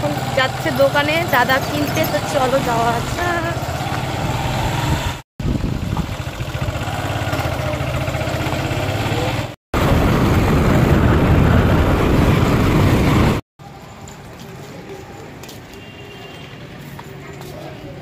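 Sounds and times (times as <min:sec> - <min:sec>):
motorcycle engine rumbling: 0:00.0 - 0:13.4
wind noise on microphone: 0:04.2 - 0:06.4, 0:09.8 - 0:13.4.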